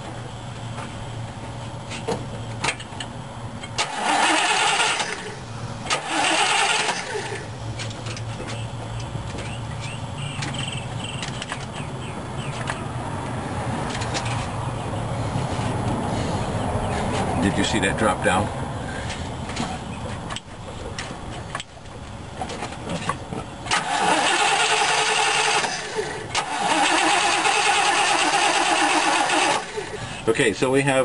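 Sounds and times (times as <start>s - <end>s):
starter cranking engine: 3.8s - 7.5s, 23.7s - 30.2s.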